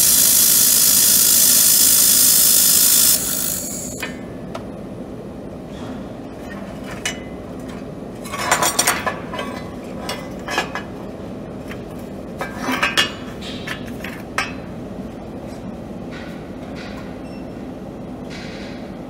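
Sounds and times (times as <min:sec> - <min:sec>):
steady machine hum: 0:00.0 - 0:06.4.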